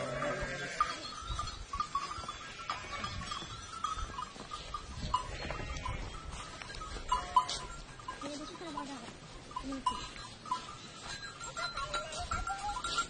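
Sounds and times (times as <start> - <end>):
goat bleating: 0.0 - 1.2, 2.1 - 3.4, 5.1 - 6.2, 7.1 - 7.8, 11.5 - 13.0
goat bells clinking: 0.0 - 13.0.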